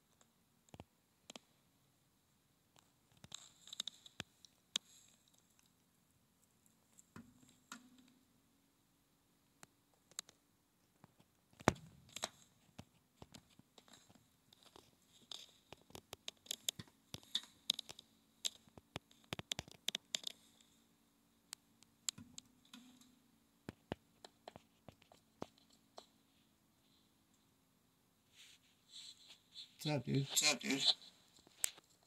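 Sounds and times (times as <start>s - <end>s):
phone scratching on metal surface: 29.0s - 31.1s.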